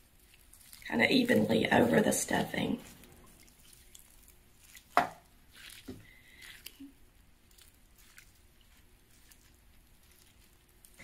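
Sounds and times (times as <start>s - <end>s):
broth pouring onto stuffing: 0.0s - 11.0s
faint soft squishing: 0.0s - 11.0s.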